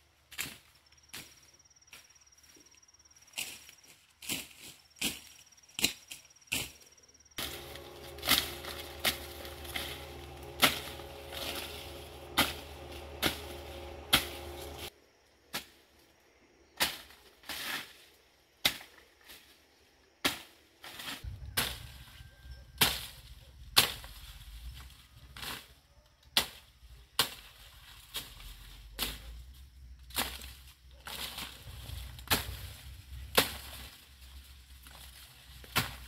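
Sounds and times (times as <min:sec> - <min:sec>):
blade chopping wood: 0:07.4 - 0:14.9, 0:35.6 - 0:36.0
motor hum: 0:07.4 - 0:14.9.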